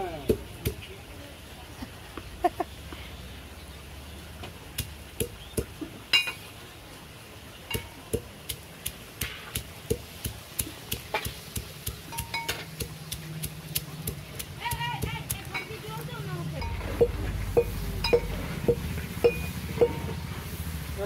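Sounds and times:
pestle knocking in metal tin: 7.8 - 16.0, 16.6 - 20.2.

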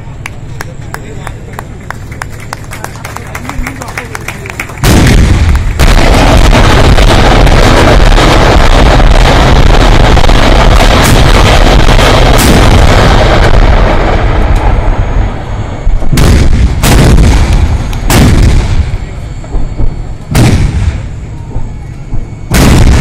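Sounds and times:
rolling rumble: 0.0 - 23.0
artillery booms echoing: 4.8 - 23.0.

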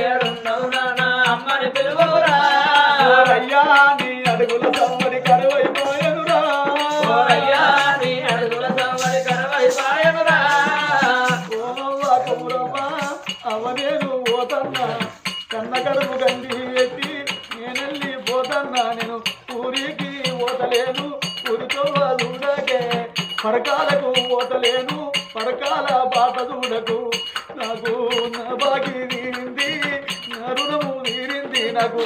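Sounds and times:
person singing long lines: 0.0 - 32.0
small hand cymbals clicking: 0.0 - 32.0.

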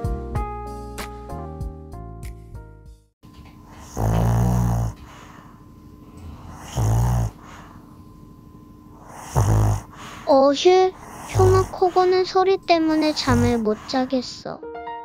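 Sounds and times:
small dog snoring: 3.6 - 5.4, 6.2 - 7.8, 8.9 - 10.1, 10.9 - 12.3, 12.9 - 14.0.

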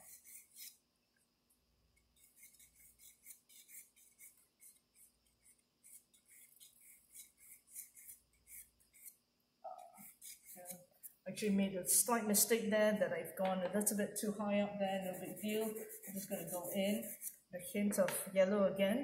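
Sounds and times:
pencil scratching on paper: 0.0 - 0.8, 2.2 - 9.2, 9.8 - 11.2, 14.8 - 17.5.

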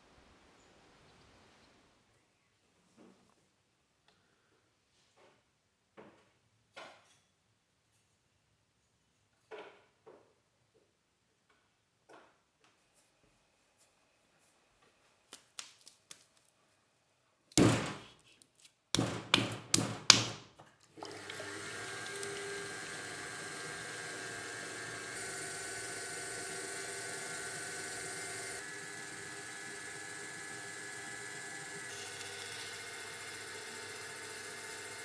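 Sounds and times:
potter's wheel humming: 21.0 - 35.0.

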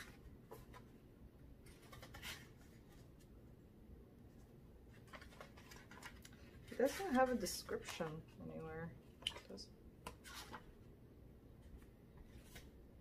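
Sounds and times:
paper rustling and scraping: 1.6 - 3.3, 4.9 - 8.3, 9.2 - 10.7, 11.7 - 12.8.

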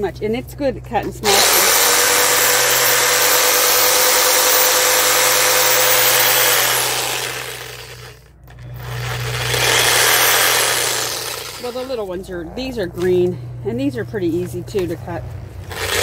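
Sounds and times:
reciprocating saw cutting branches: 1.2 - 8.2, 8.8 - 12.0, 15.7 - 16.0.

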